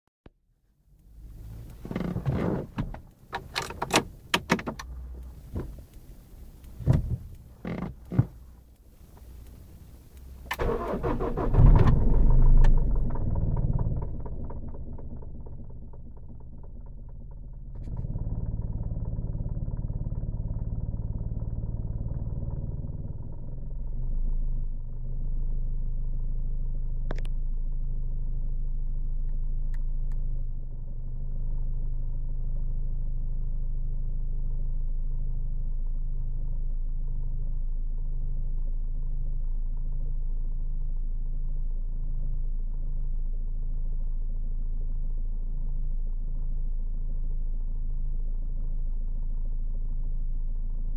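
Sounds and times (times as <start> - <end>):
sharp clicks: 1.0 - 12.8
diesel engine starting and idling: 1.1 - 22.2.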